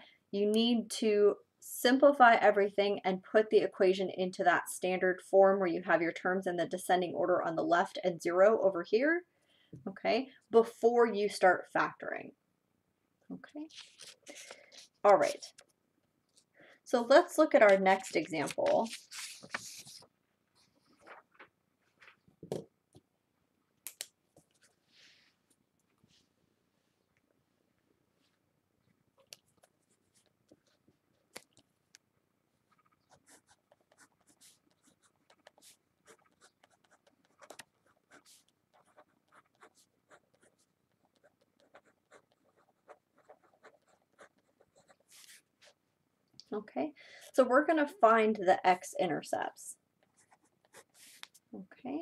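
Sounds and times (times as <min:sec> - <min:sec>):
paper sheets rustling: 0:13.7 - 0:15.6, 0:17.6 - 0:22.2
pen scratching on paper: 0:32.7 - 0:45.8, 0:50.0 - 0:51.4.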